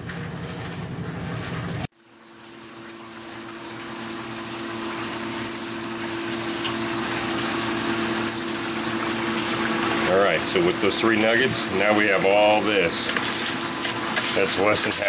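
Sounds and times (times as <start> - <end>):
electric water pump humming: 1.9 - 15.0
water pouring and splashing: 1.9 - 15.0.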